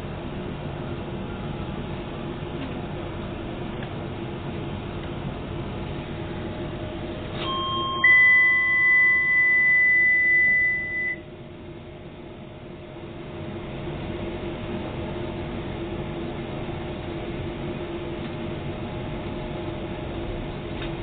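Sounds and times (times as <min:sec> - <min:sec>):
train running hum: 0:00.0 - 0:21.0
loud high beep: 0:07.4 - 0:11.3
pair of electronic tones: 0:07.4 - 0:11.3.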